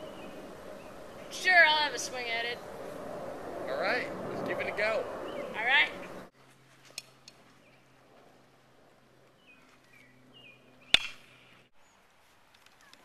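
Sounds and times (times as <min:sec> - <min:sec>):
birds chirping: 0:00.0 - 0:06.3, 0:09.2 - 0:12.1
baseball bat cracking ball: 0:10.9 - 0:11.4.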